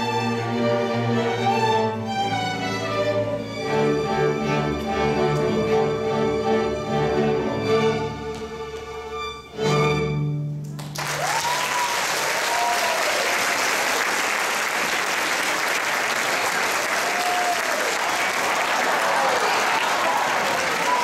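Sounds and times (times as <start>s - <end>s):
audience applause: 10.7s - 21.0s
people cheering: 10.9s - 21.0s.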